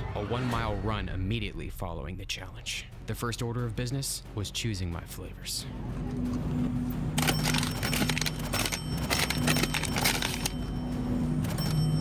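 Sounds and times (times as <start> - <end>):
ice cream pints clattering: 7.2 - 10.6.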